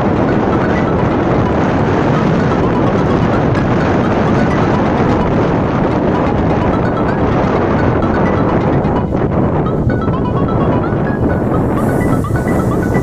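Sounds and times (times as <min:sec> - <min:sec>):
wind rush: 0:00.0 - 0:13.0.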